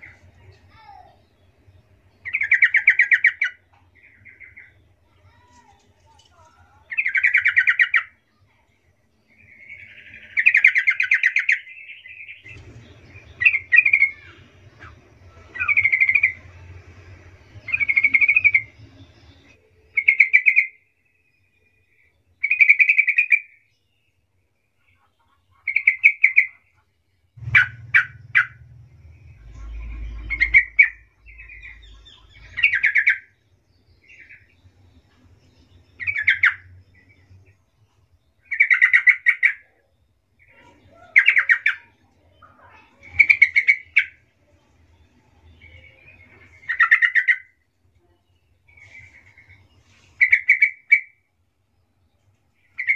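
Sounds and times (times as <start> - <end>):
bird chattering song: 0.0 - 5.4, 6.8 - 8.6, 9.2 - 16.8, 17.4 - 24.1, 24.7 - 26.8, 27.4 - 51.3, 52.6 - 52.9
faint low hum: 0.0 - 20.2, 23.7 - 38.9, 39.5 - 50.4.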